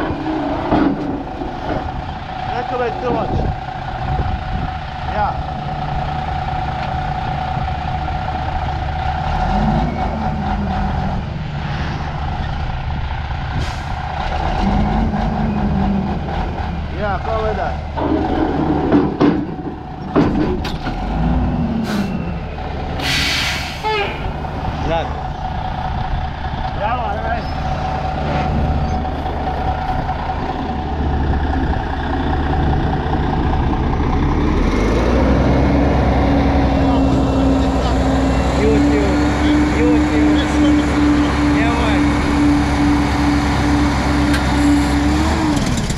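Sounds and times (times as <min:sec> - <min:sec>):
diesel truck engine revving: 0:00.0 - 0:45.9
air hiss: 0:23.0 - 0:23.9.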